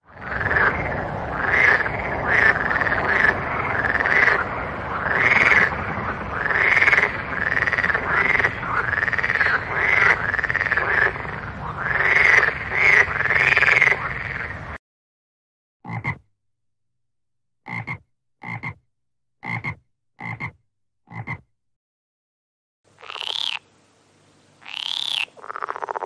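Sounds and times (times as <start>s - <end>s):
low background rumble: 0.1s - 13.2s
frogs croaking: 0.1s - 14.7s, 17.7s - 18.8s, 19.4s - 21.4s, 23.0s - 23.7s, 24.6s - 26.0s.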